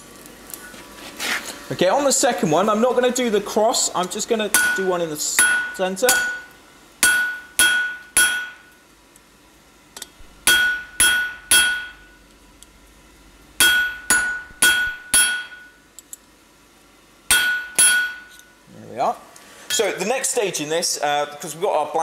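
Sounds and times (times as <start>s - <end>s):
hammer striking steel on anvil: 4.5s - 8.8s, 10.0s - 12.2s, 13.6s - 15.8s, 17.3s - 18.4s.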